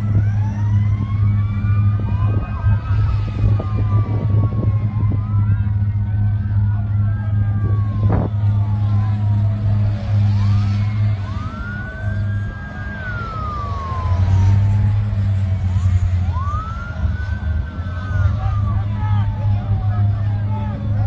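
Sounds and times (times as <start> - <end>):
emergency sirens wailing: 0.0 - 21.0
steady low drone: 0.0 - 21.0.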